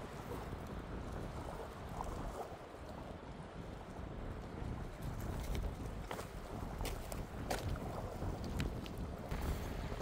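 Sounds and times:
wind rumbling on microphone: 0.0s - 10.0s.

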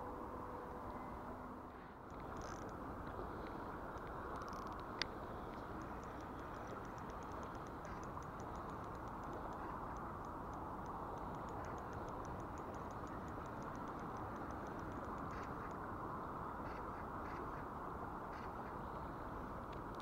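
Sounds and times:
flowing river water: 1.5s - 20.0s
faint high ticking: 2.0s - 15.9s.

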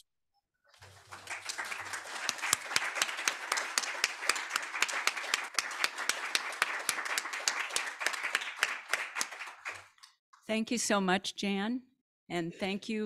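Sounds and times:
audience applauding: 0.8s - 10.1s.

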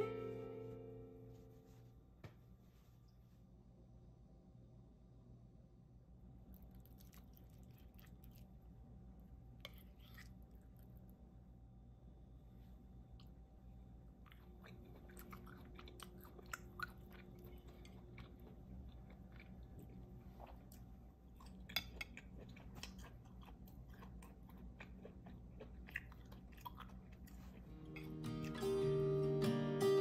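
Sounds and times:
music: 0.0s - 1.9s, 27.7s - 30.0s
person chewing food: 6.5s - 8.8s, 9.5s - 11.2s, 14.0s - 29.0s.

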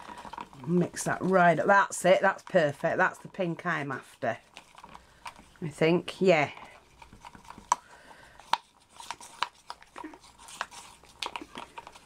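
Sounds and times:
stick scraping plastic cup: 4.3s - 12.0s.

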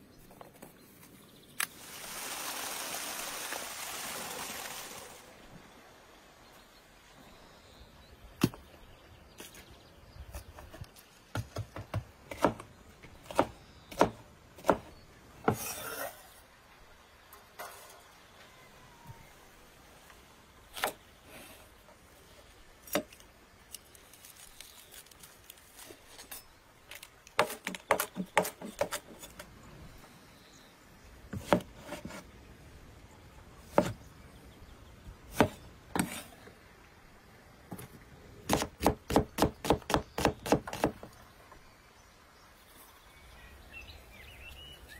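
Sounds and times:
knife chopping on wooden board: 13.2s - 14.9s, 33.7s - 34.0s, 38.5s - 41.1s.

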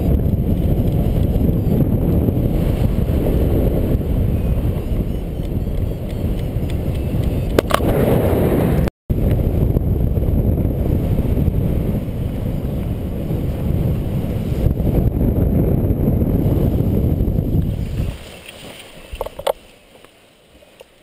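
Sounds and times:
wind buffeting microphone: 0.0s - 19.7s.

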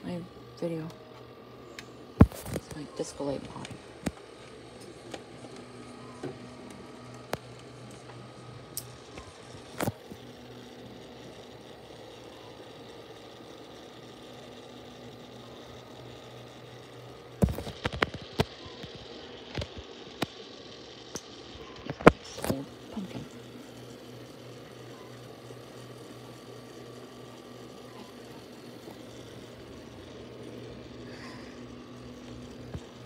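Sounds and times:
low electrical hum: 0.0s - 33.0s.

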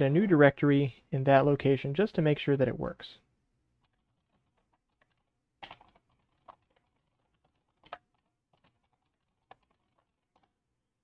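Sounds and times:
faint keyboard typing: 3.8s - 10.7s.

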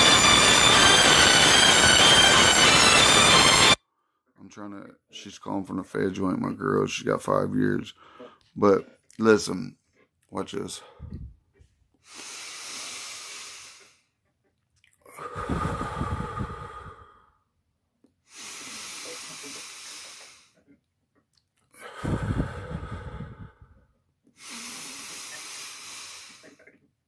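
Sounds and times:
man breathing deeply: 8.0s - 8.4s, 10.8s - 11.4s, 12.0s - 14.2s, 15.1s - 17.6s, 18.2s - 20.7s, 21.7s - 26.7s.

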